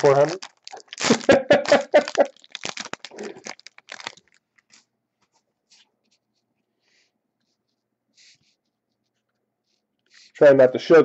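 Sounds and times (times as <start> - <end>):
cards rustling: 0.0 - 4.9
foil wrapper crinkling and tearing: 0.0 - 4.9.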